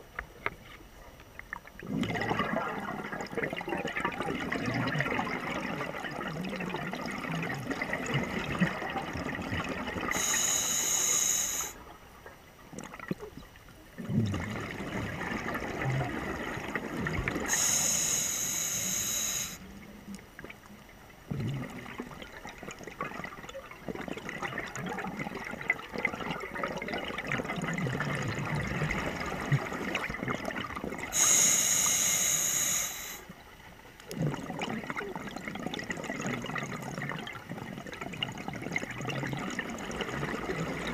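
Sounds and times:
exhaled air bubbling: 1.5 - 12.0, 12.6 - 33.4, 34.0 - 40.9
regulator inhalation hissing: 10.1 - 11.8, 17.5 - 19.6, 31.2 - 33.2.

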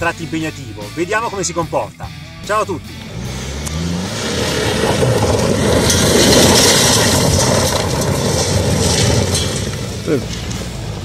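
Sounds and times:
car engine under load: 2.2 - 11.0
tyres scrabbling on gravel: 4.2 - 11.0.

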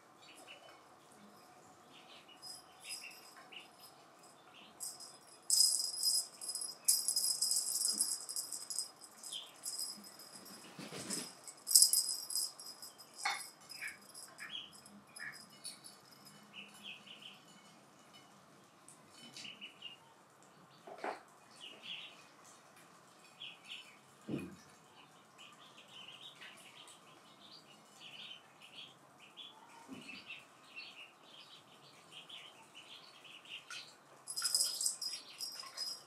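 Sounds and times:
cat toy rattling: 2.4 - 3.5, 4.8 - 16.4, 34.3 - 36.0.

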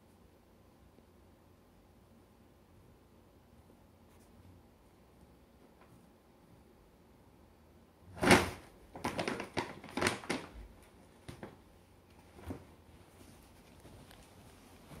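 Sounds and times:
paper bag rustling: 8.2 - 10.7.

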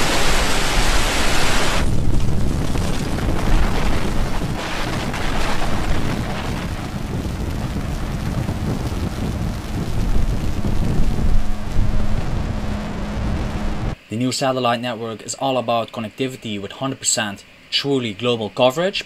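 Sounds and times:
broad hiss: 0.0 - 1.8
rocket engines rumbling: 1.2 - 14.0.

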